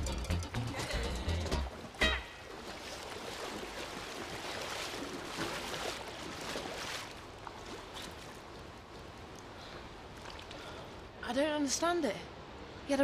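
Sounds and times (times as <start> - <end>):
pool water splashing and sloshing: 1.6 - 11.2.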